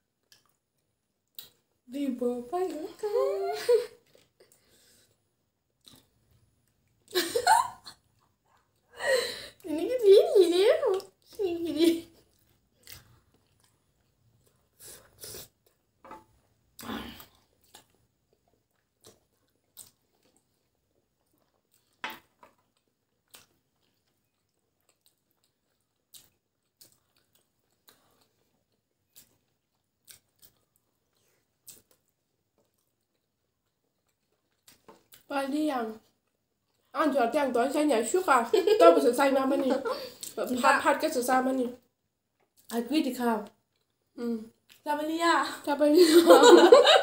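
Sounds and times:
chewing: 0.2 - 1.7, 4.0 - 7.1, 12.1 - 15.9, 16.8 - 35.3, 43.4 - 44.8.

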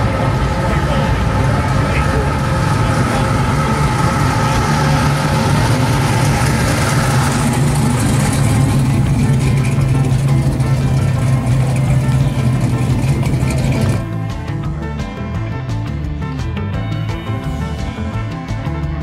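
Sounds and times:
car engine rolling past: 0.0 - 14.2.

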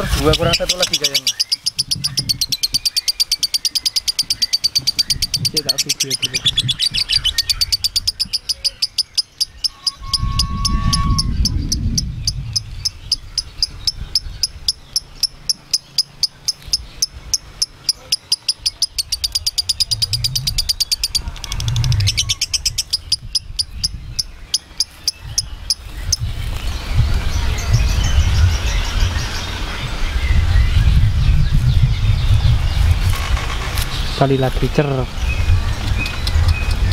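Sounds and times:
lovebird chattering: 0.0 - 26.6.

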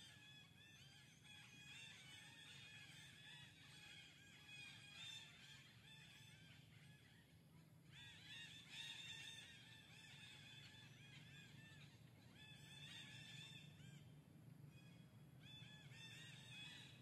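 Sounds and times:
low steady hum: 9.4 - 17.0.

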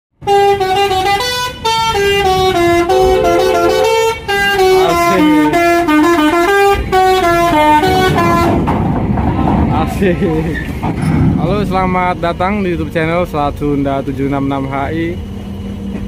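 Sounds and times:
bus horn playing a tune: 0.2 - 8.7.

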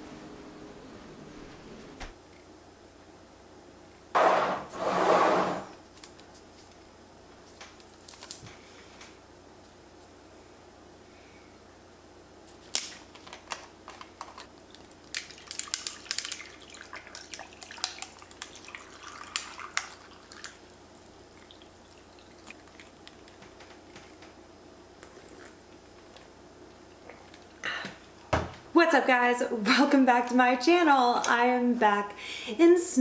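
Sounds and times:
ice clinking and crackling: 13.4 - 20.7
tea pouring over ice: 14.7 - 23.4.

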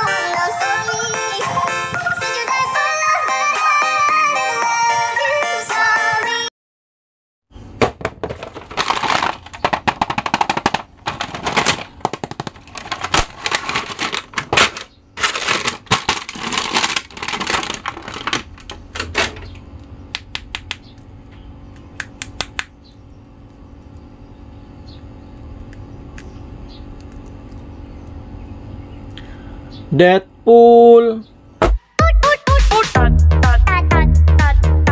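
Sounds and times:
plastic bag crinkling: 8.2 - 19.4.

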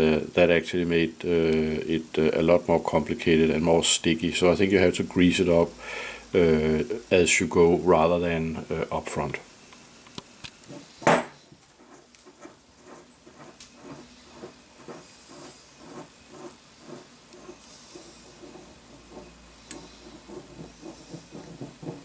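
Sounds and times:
faint hiss: 0.0 - 21.9
sharp knock on table: 11.0 - 11.4.

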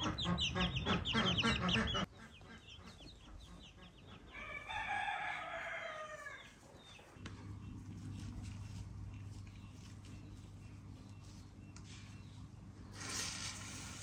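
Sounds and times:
rooster crowing: 4.3 - 6.6
steady low hum: 7.0 - 13.0.

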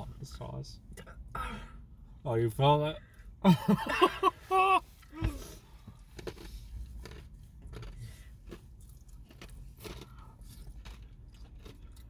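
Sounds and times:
person chewing chicken wing: 6.0 - 12.0.

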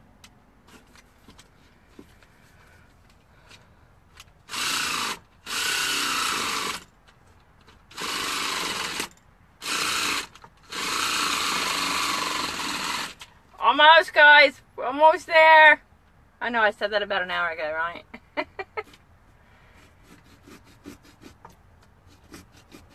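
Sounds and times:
battery-powered saw cutting pumpkin: 4.5 - 6.8, 7.9 - 13.2, 19.8 - 21.4, 22.1 - 22.9.

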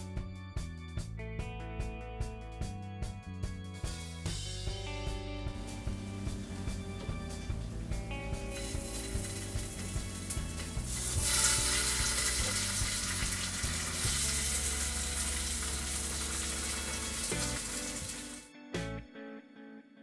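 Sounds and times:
background music: 0.0 - 20.0
pancakes sizzling in frying pan: 8.5 - 18.4.

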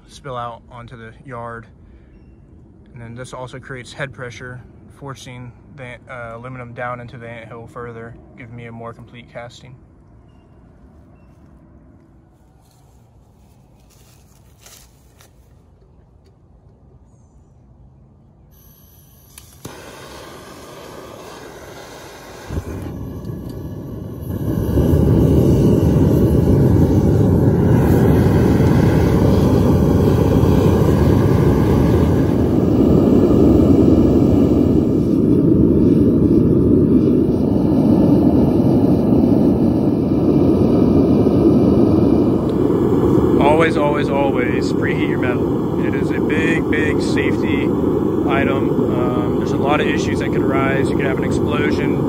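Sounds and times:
gas burner rushing: 18.5 - 52.0
burner ignition click: 18.6 - 36.3, 40.7 - 52.0.

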